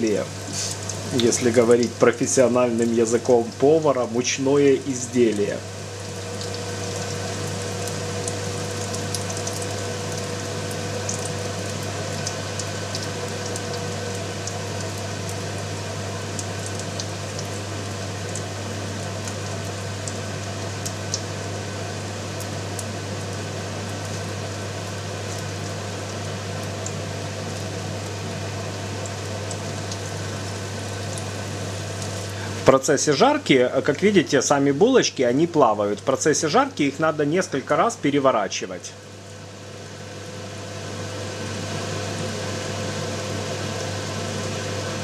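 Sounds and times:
hot oil sizzling and bubbling: 0.0 - 45.0
steady low hum: 0.0 - 45.0
sharp oil crackles: 0.1 - 3.9, 4.6 - 32.7.

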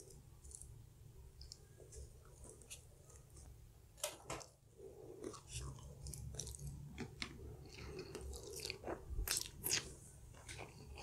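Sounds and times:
person chewing crunchy pizza: 5.0 - 11.0.

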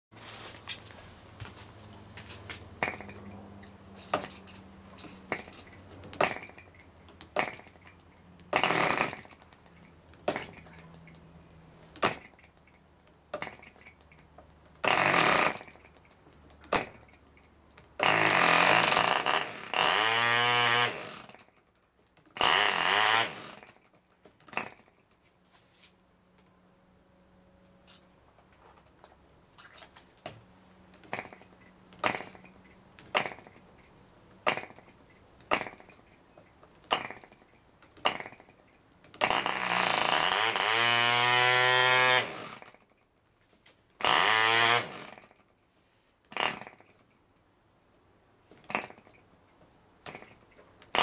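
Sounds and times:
model engine popping and sputtering: 5.3 - 11.1, 39.2 - 42.8.

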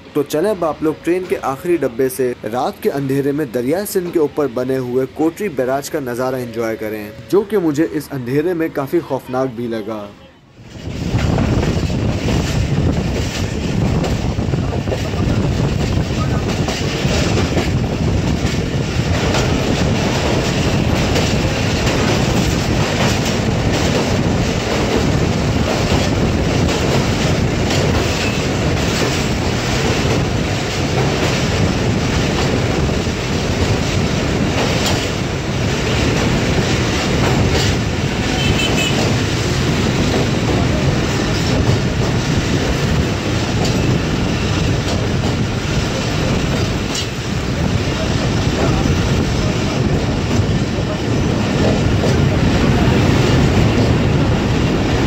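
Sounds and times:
train rumble: 0.0 - 55.0
wheels clattering over rail joints: 10.7 - 55.0.

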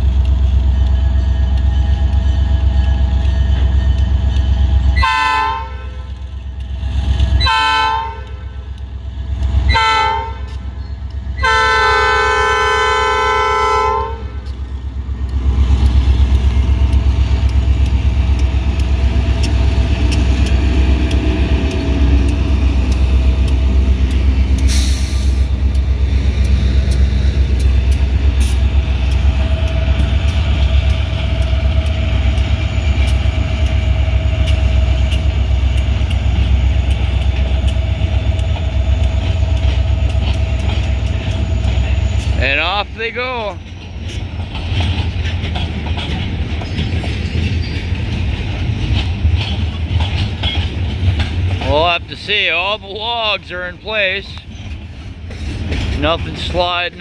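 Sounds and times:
locomotive diesel engines rumbling: 0.0 - 57.0
locomotive horn blasts: 5.0 - 6.1, 7.4 - 8.6, 9.7 - 10.6, 11.4 - 14.4.

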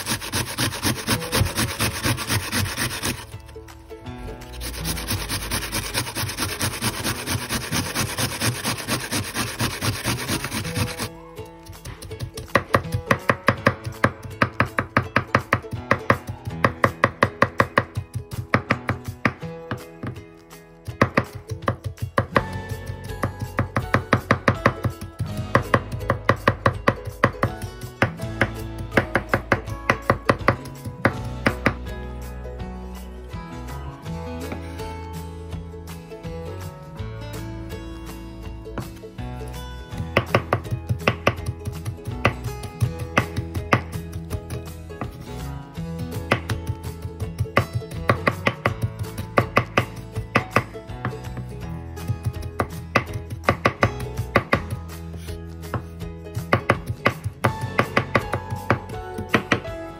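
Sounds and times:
knife chopping on wooden board: 0.0 - 3.3, 4.5 - 11.1, 11.7 - 20.2, 20.9 - 31.8, 40.0 - 45.2, 46.2 - 51.5, 52.2 - 54.8, 55.7 - 59.7
onion scraping on metal grater: 0.0 - 3.4, 4.4 - 11.1.

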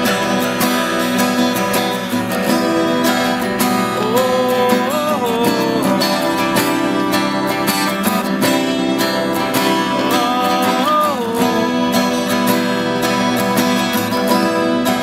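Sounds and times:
acoustic guitars strummed and picked: 0.0 - 15.0
man singing held note: 4.0 - 6.6, 10.1 - 12.1.

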